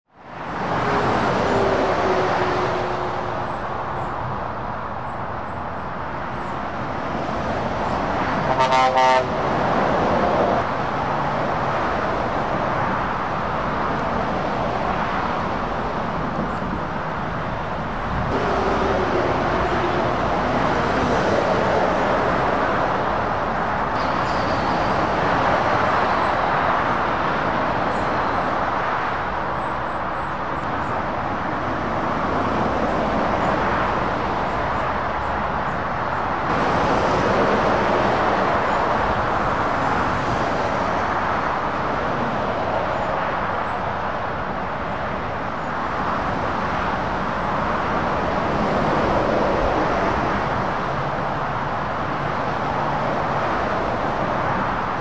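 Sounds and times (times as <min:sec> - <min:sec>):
motorway traffic passing: 0:00.1 - 0:55.0
vehicle horn: 0:08.4 - 0:09.4, 0:18.4 - 0:20.3.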